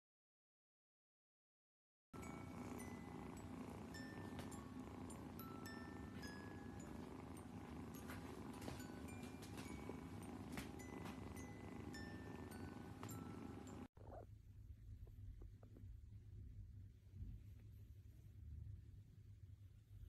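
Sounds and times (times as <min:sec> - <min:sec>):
soft chiming music: 0:02.2 - 0:13.9
kitten purring: 0:02.2 - 0:19.0
low hum: 0:02.2 - 0:20.0.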